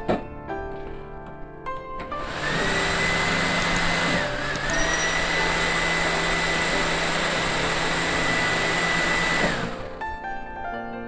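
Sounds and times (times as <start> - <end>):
hot air gun fan whining: 2.2 - 10.0.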